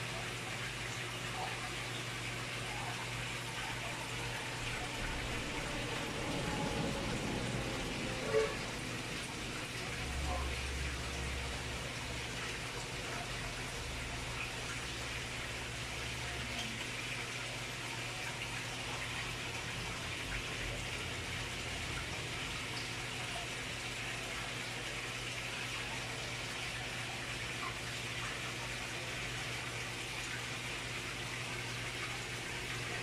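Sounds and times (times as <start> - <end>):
low hum: 3.8 - 14.5.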